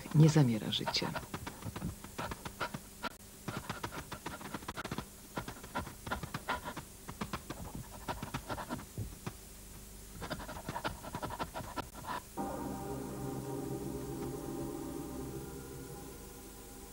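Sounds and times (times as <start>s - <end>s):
wolves panting: 0.2s - 9.1s, 10.2s - 12.4s
music: 12.4s - 16.9s.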